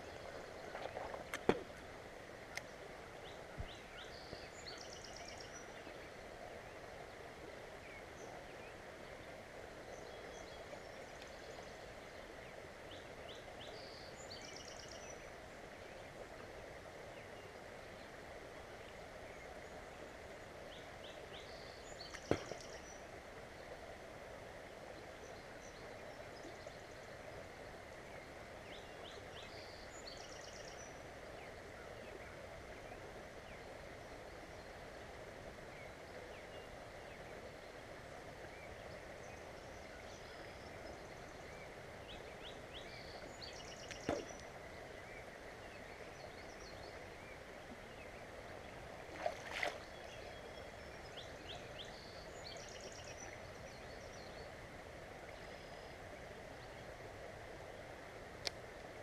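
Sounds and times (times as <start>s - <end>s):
flowing water: 0.0s - 30.0s, 30.6s - 59.0s
small birds chirping: 20.8s - 23.0s, 38.6s - 54.6s.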